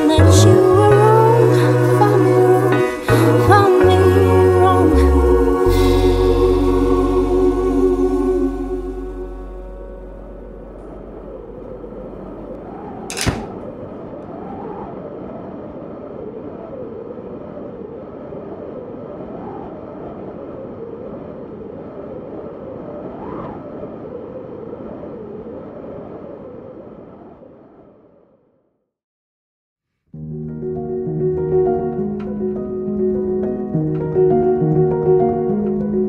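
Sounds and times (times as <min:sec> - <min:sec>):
wavering noise wash: 0:00.0 - 0:27.3
sharp crack: 0:12.5 - 0:13.8.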